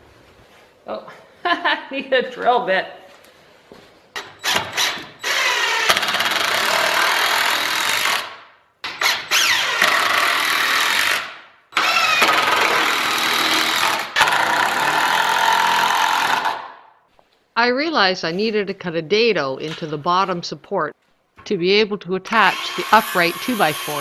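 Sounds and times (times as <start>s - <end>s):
impact driver drilling into wood: 4.4s - 16.7s, 22.4s - 24.0s.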